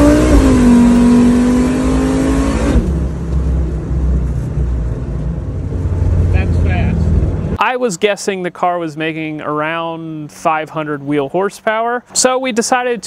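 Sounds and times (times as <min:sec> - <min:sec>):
car engine accelerating hard: 0:00.0 - 0:07.6
low engine rumble: 0:02.8 - 0:07.6.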